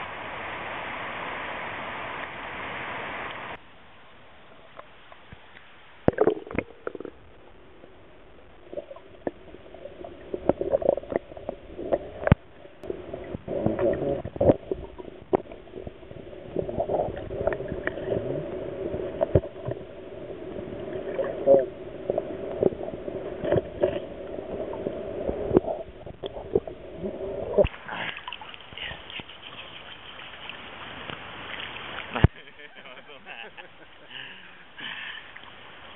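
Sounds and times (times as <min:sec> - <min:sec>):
rushing river hiss: 0:00.0 - 0:03.6, 0:27.7 - 0:35.9
muffled underwater drone: 0:06.0 - 0:27.7.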